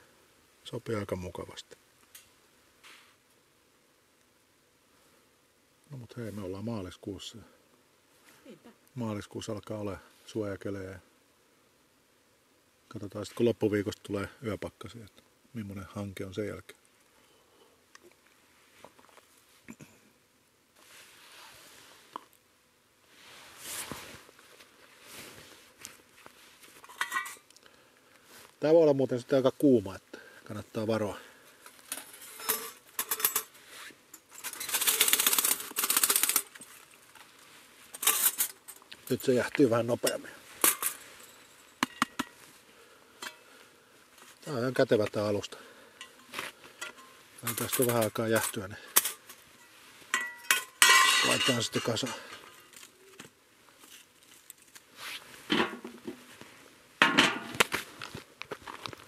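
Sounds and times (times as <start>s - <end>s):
metal grate scraping: 31.9s - 33.5s
metal grill grate clanking: 50.2s - 52.3s.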